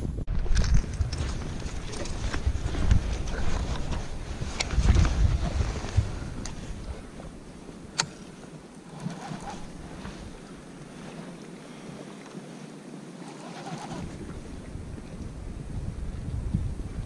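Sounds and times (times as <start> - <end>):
choppy water: 0.0 - 17.0
wind and rain hissing: 0.0 - 17.0
wind buffeting microphone: 0.0 - 17.0
short rustling: 1.0 - 14.1.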